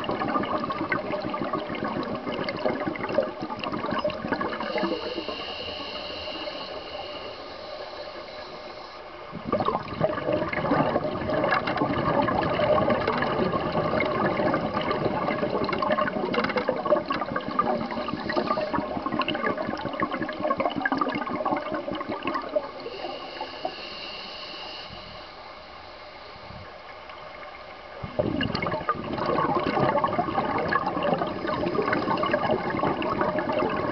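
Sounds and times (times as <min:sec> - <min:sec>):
underwater exhaust bubbles: 0:00.0 - 0:33.9
steady hiss: 0:03.1 - 0:09.5, 0:14.0 - 0:28.2
faint high whine: 0:03.8 - 0:09.6, 0:22.5 - 0:28.5.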